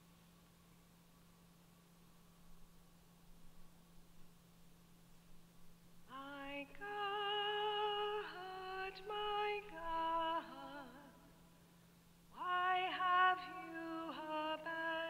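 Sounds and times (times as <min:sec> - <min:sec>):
faint electrical hum: 0:00.0 - 0:15.0
woman singing solo: 0:06.1 - 0:11.2, 0:12.4 - 0:15.0.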